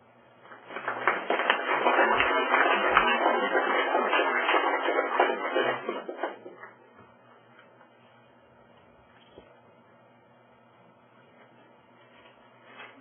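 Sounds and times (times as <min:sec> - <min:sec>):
audience applauding: 0:00.6 - 0:06.6.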